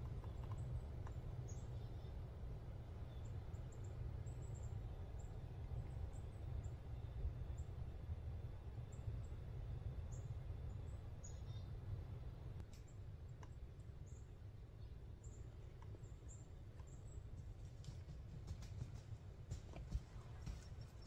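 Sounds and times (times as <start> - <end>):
faint ticks: 0.0 - 1.6
woodland ambient rumble: 0.0 - 21.0.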